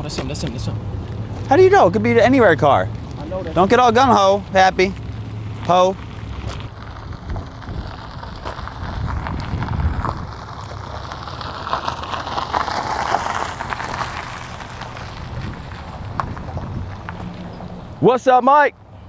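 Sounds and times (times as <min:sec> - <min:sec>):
footsteps on asphalt: 0:00.0 - 0:18.0
car rolling slowly: 0:00.0 - 0:19.0
wind buffeting microphone: 0:06.7 - 0:10.6, 0:14.6 - 0:17.8.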